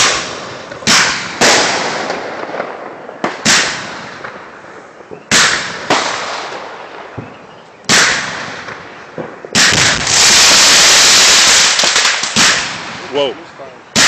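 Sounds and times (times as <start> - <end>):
firework bangs with crackle: 0.0 - 14.0
fireworks hissing roar: 7.2 - 13.8.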